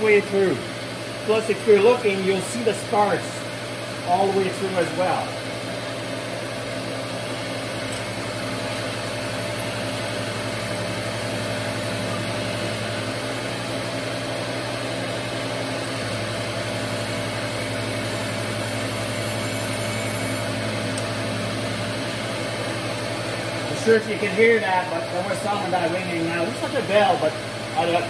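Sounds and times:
surface grinder running: 8.3s - 28.0s.

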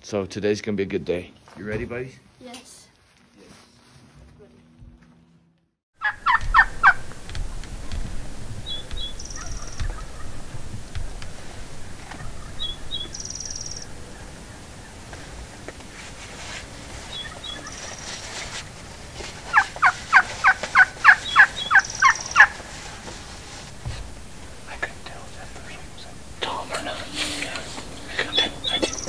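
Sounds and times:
wild turkey yelping: 6.0s - 7.3s, 8.6s - 15.7s, 17.1s - 18.3s, 19.4s - 23.1s, 27.4s - 29.0s.

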